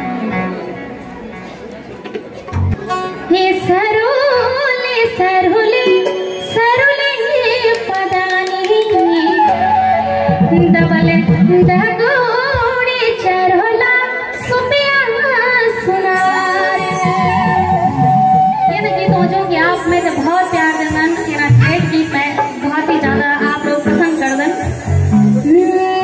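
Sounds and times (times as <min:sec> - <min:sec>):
keyboard: 0:00.0 - 0:26.0
woman singing into microphone: 0:03.3 - 0:26.0.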